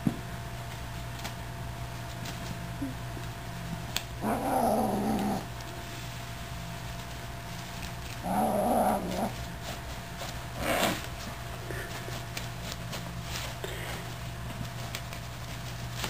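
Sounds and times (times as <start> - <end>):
kitten growling: 4.2 - 5.5, 8.2 - 9.4, 10.6 - 11.0.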